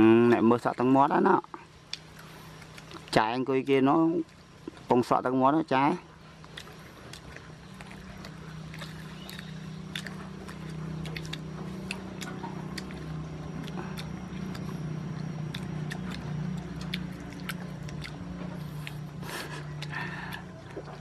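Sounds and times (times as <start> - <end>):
chewing and crunching: 0.0 - 21.0
low drone: 6.1 - 21.0.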